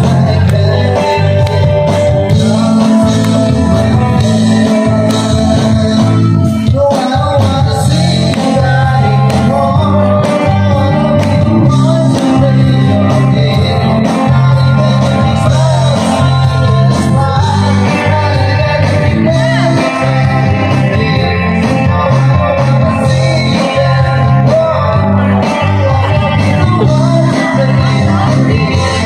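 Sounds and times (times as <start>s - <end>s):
bass guitar: 0.0s - 29.0s
drums: 0.0s - 29.0s
electric guitar: 0.0s - 29.0s
person singing: 0.0s - 29.0s.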